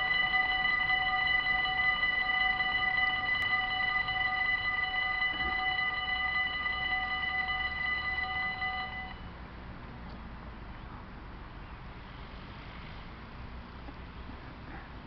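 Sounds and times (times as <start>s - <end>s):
level crossing warning bells: 0.0s - 9.4s.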